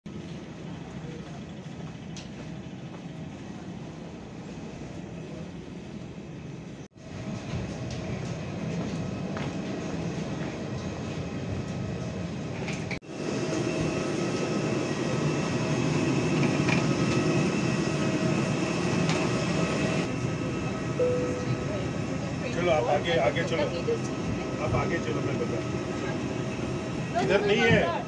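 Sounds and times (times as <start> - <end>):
aircraft air conditioning rumble: 0.1 - 28.0
faint whine: 19.4 - 23.0.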